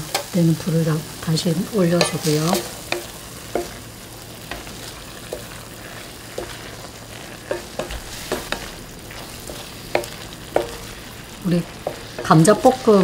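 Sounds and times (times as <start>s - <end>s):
onions sizzling in a pan: 0.0s - 13.0s
wooden spatula knocking on pan: 2.0s - 3.8s, 4.4s - 5.6s, 6.2s - 6.8s, 7.4s - 13.0s.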